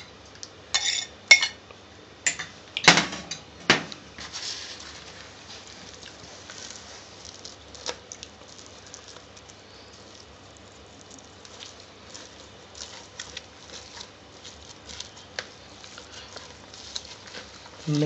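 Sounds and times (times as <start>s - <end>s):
hands squishing wet food: 4.2s - 18.0s.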